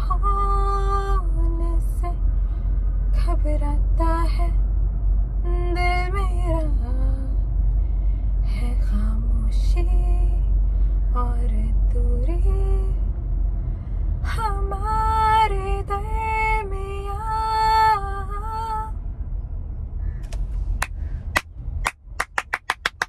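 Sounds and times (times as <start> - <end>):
hand claps: 20.8 - 23.0.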